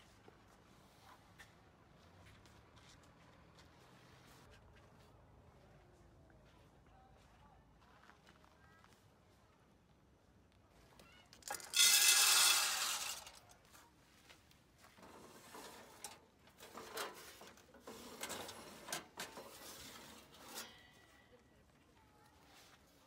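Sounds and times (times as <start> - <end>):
light scrapes and clicks: 11.3 - 13.9, 14.9 - 21.0
metal sliding on metal: 11.4 - 13.5, 15.0 - 21.1.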